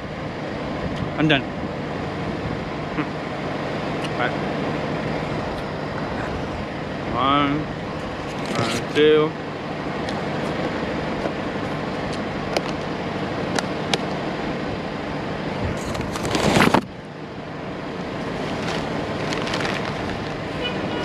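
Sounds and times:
street traffic noise: 0.0s - 21.0s
packaging rustle: 15.8s - 16.8s, 18.4s - 20.4s.

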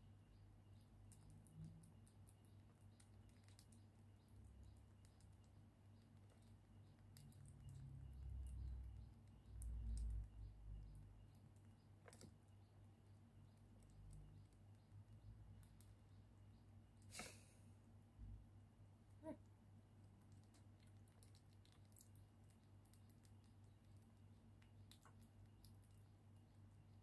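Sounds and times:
faint small clicks: 1.0s - 10.4s, 11.3s - 12.6s, 20.2s - 26.1s.

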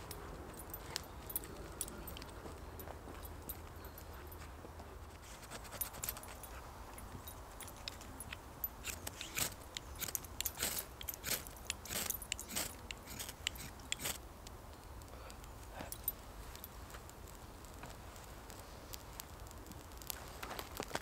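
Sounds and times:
knife scraping dry stick: 5.1s - 7.1s, 7.7s - 14.2s.

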